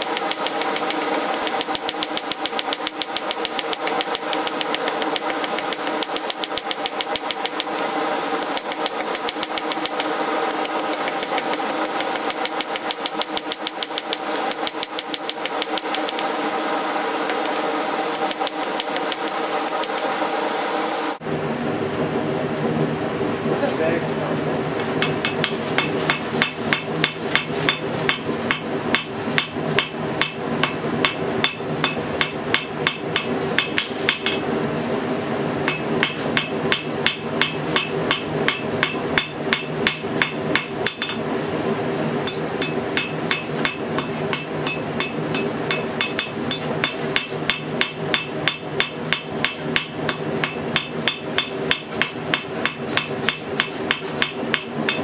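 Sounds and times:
steady low hum: 0:00.0 - 0:55.0
hammer ringing on anvil: 0:42.3 - 0:55.0.

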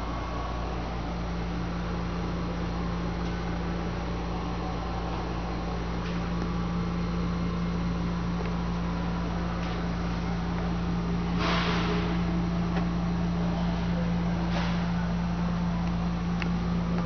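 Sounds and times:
electron microscope machine hum: 0:00.0 - 0:17.0.

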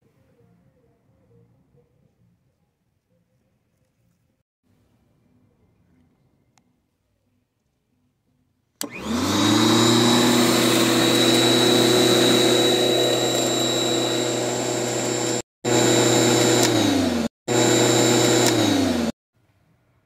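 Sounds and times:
electric lawn mower whining: 0:08.8 - 0:19.1.

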